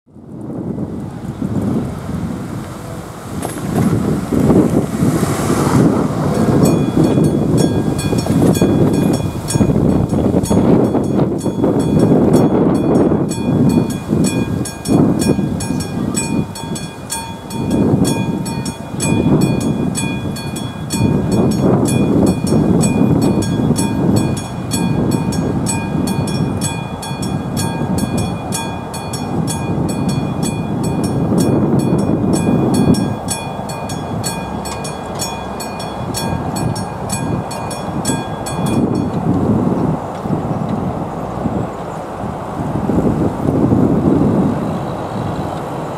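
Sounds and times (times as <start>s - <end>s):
gusting low rumble: 0.1s - 45.9s
level crossing bell ringing: 6.6s - 39.2s.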